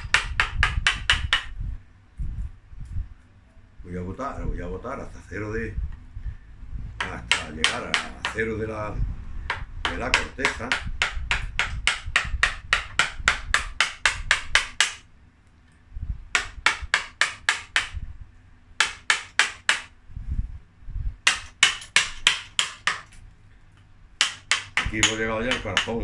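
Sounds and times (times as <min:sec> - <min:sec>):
mallet tapping chisel into wood: 0:00.0 - 0:01.5, 0:07.0 - 0:08.5, 0:09.5 - 0:15.0, 0:16.3 - 0:18.0, 0:18.8 - 0:19.9, 0:21.2 - 0:23.1, 0:24.2 - 0:26.0.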